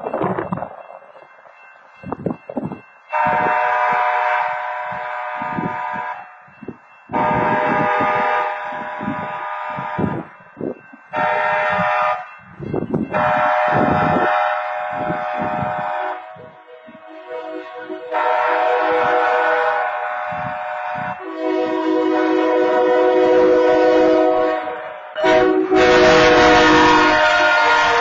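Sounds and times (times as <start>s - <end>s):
locomotive air horn blasts: 3.1s - 6.2s, 7.1s - 10.3s, 11.1s - 12.3s, 13.1s - 28.0s.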